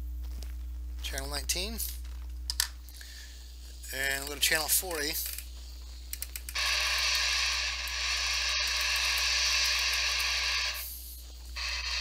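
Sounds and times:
low steady hum: 0.0s - 12.0s
radio static hiss: 2.8s - 12.0s.

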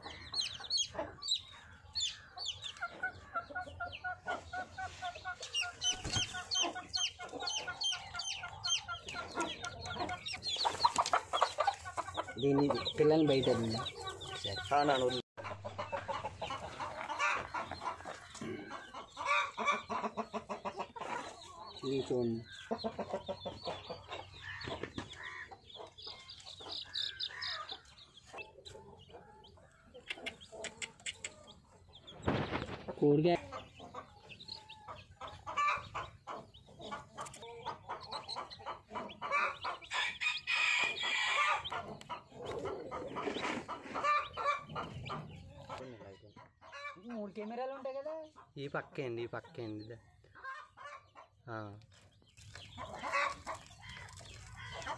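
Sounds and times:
chicks peeping: 0.0s - 54.9s
hen clucking: 0.0s - 54.9s.

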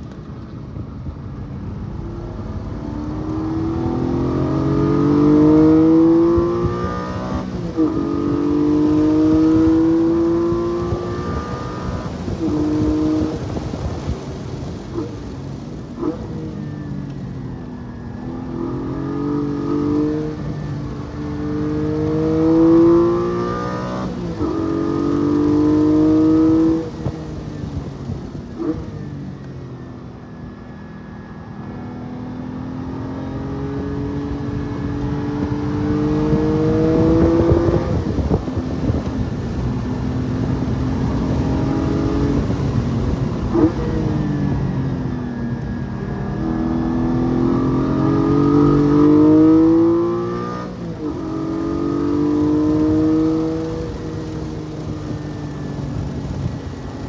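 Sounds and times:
car engine revving: 1.9s - 13.8s, 18.2s - 27.8s, 31.6s - 44.6s, 46.2s - 57.0s.

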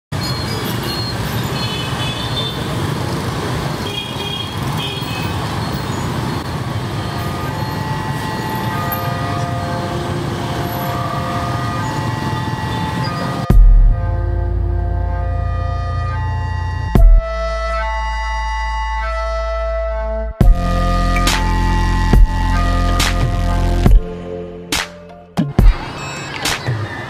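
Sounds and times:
scooter and motorbike engines: 0.2s - 13.6s, 25.6s - 27.0s
horns beeping: 3.8s - 27.0s.

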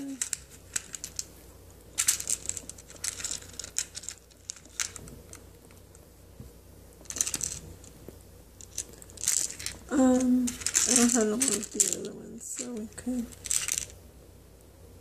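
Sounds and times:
metal beads rattling in plastic box: 0.0s - 1.3s, 1.9s - 5.4s, 7.0s - 7.8s, 8.6s - 14.0s.

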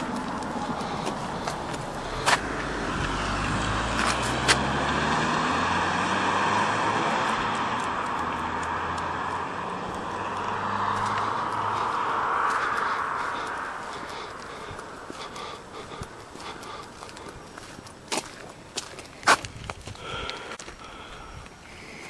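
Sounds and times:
car engine running: 0.0s - 4.8s, 5.4s - 18.1s.

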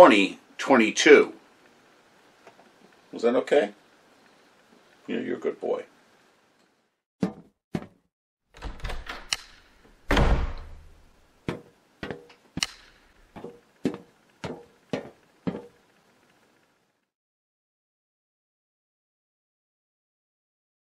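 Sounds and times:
sharp clicks: 8.6s - 9.9s, 12.6s - 13.1s
heavy thunk with low boom: 10.1s - 10.8s.

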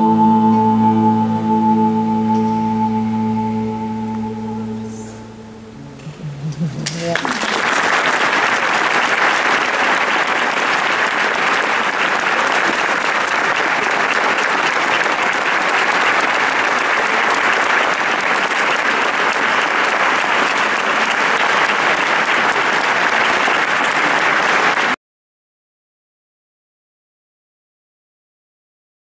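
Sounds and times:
audience applauding: 6.6s - 25.0s.

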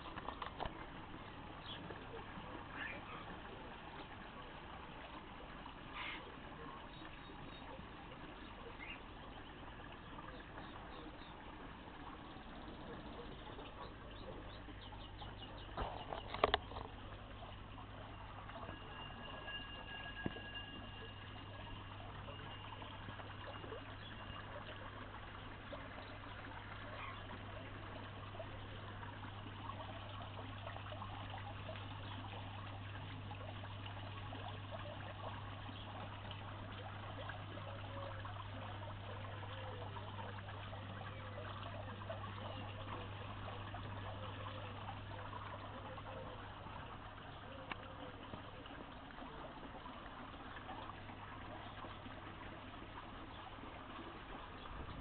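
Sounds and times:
constant low hum: 0.0s - 55.0s
fountain water trickling and splashing: 0.0s - 55.0s.

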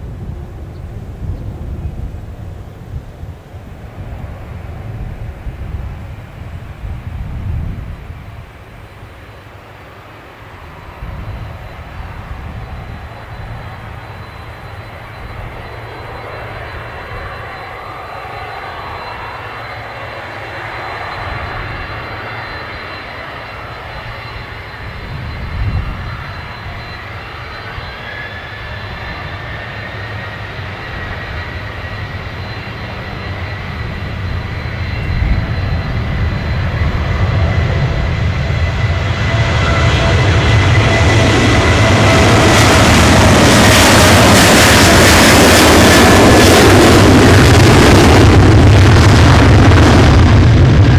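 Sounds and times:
high jet engine whine: 0.0s - 50.9s
jet engines low rumble: 0.0s - 50.9s.

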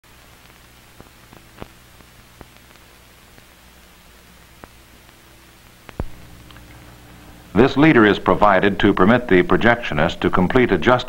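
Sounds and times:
film soundtrack hiss: 0.0s - 11.0s
low hum: 1.2s - 9.6s
clicks and pops: 4.6s - 7.0s.

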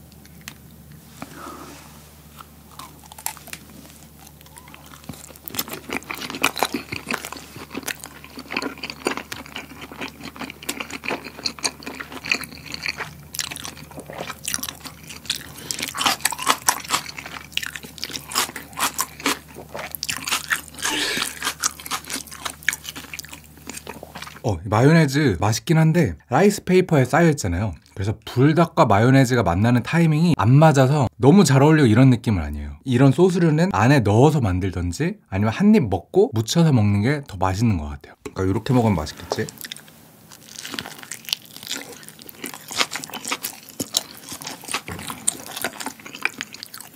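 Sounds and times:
wet chewing: 2.2s - 24.4s, 39.2s - 46.9s.

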